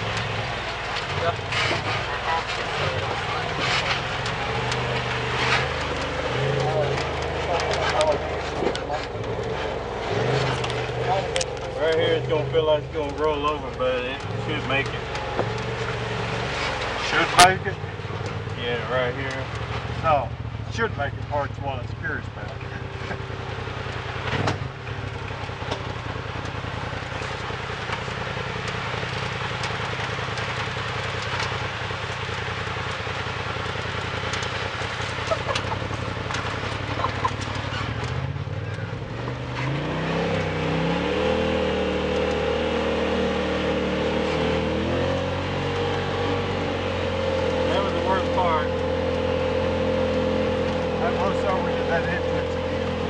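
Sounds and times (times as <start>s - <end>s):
off-road vehicle engine: 0.0s - 53.0s
knocks and rattles from bumps: 22.5s - 39.8s.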